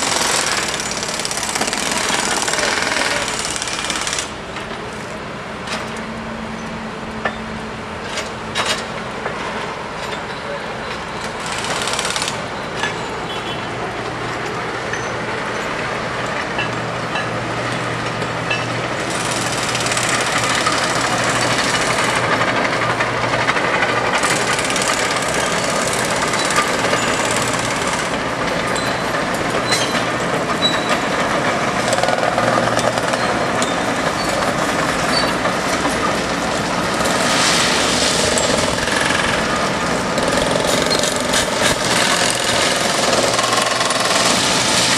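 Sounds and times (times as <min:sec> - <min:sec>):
diesel engines humming: 0:00.0 - 0:44.9.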